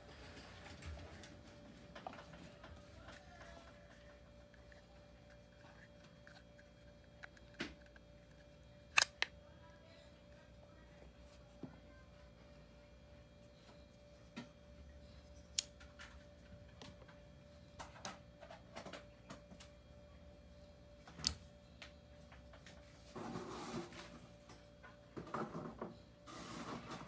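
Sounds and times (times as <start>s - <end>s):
faint steady hum: 0.0s - 27.0s
shears clicking and snapping: 8.9s - 9.3s.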